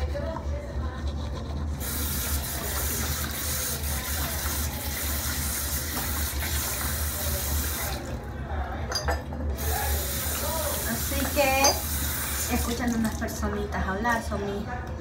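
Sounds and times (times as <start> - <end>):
tap water running into sink: 1.8 - 8.2, 9.6 - 14.2.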